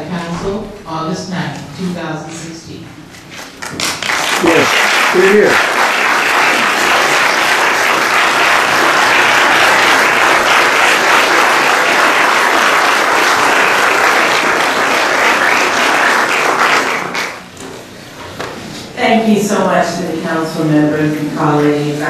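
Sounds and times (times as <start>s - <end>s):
crowd applauding: 3.6s - 17.5s.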